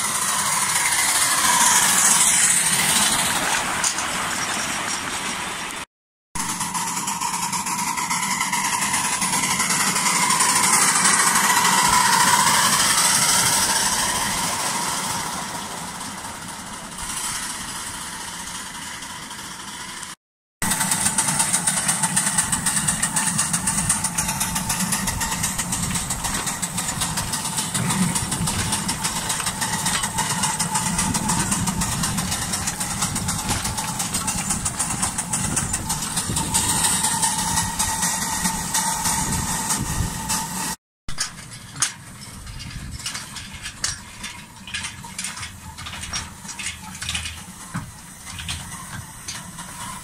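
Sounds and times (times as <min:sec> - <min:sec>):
miniature steam locomotive running: 0:00.0 - 0:50.0.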